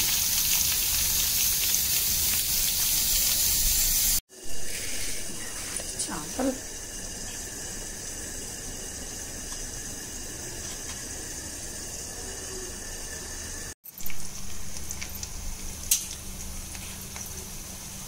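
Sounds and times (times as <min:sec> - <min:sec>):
food sizzling in hot oil: 0:00.0 - 0:12.2.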